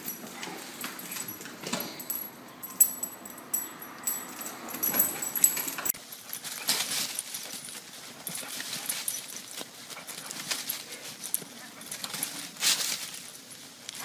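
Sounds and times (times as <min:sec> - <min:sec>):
dog feet rustling through dry leaves: 0:06.0 - 0:14.0.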